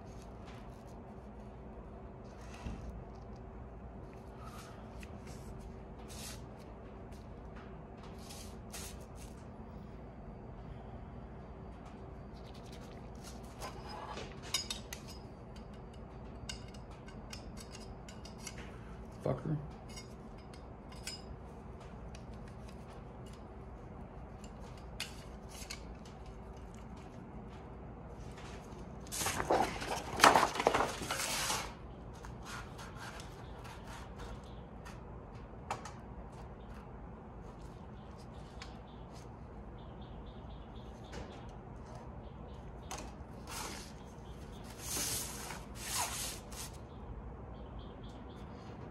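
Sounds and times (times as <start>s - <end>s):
low steady hum: 0.0s - 48.9s
paper rustling on metal table: 4.4s - 6.7s, 8.1s - 9.4s, 28.4s - 34.0s, 44.6s - 46.8s.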